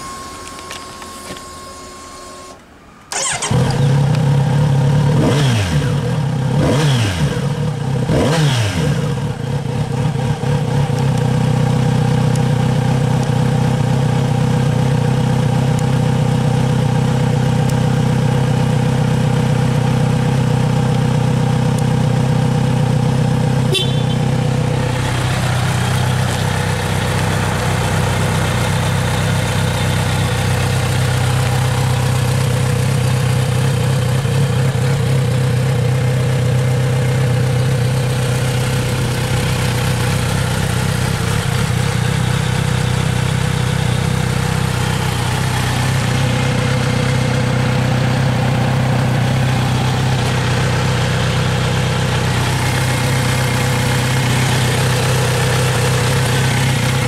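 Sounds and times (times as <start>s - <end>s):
ignition whine: 0.0s - 5.1s, 37.5s - 57.0s
motorcycle engine revving and idling: 3.1s - 57.0s.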